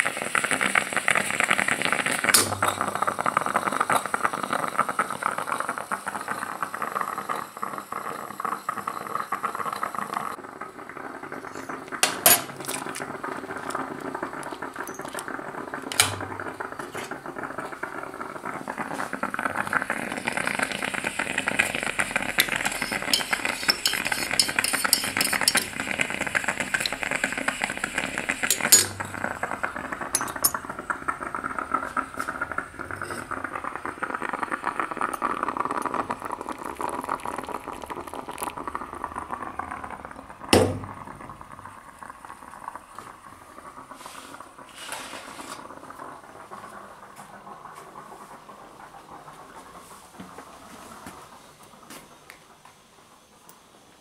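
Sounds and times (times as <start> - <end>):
moka pot sputtering and gurgling: 0.0 - 54.0
metal spoon clinking on cup: 22.9 - 25.8, 28.5 - 28.9, 30.2 - 30.6.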